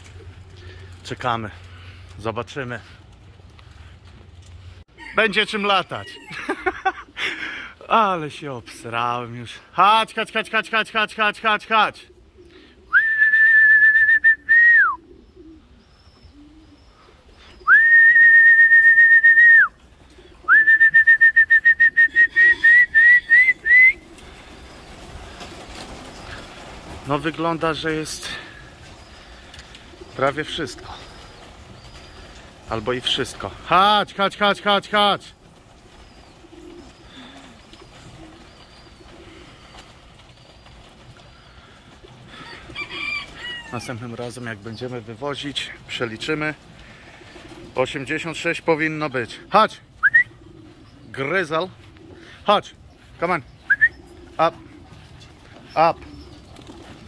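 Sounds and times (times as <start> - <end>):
small birds chirping: 0.0 - 4.8, 15.0 - 17.7, 22.3 - 57.0
pigeons cooing: 0.0 - 9.7, 10.3 - 13.2, 14.3 - 18.9, 19.7 - 57.0
high whistles: 12.9 - 15.0, 17.6 - 19.8, 20.5 - 24.0, 50.0 - 50.4, 53.7 - 54.0.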